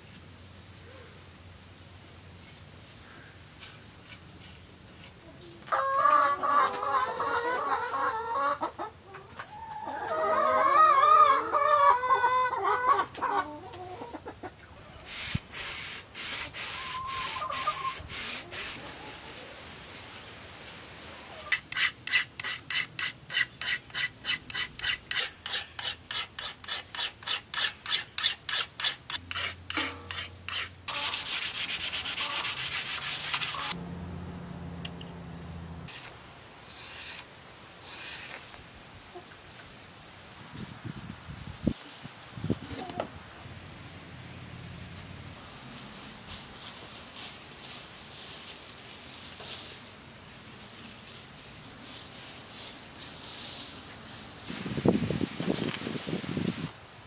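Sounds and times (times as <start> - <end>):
long wavering calls: 16.7 - 18.0
rhythmic rubbing strokes: 21.5 - 33.8
hand rubbing along a bow: 26.4 - 33.8.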